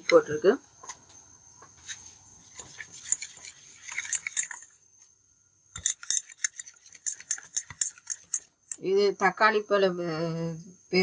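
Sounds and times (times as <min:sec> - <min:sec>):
whisk clinking in metal bowl: 0:05.8 - 0:08.5.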